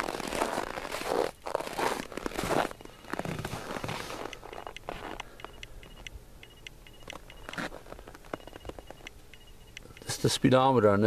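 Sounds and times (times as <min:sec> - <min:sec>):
footsteps crunching in snow: 0:00.0 - 0:05.2, 0:07.1 - 0:09.0.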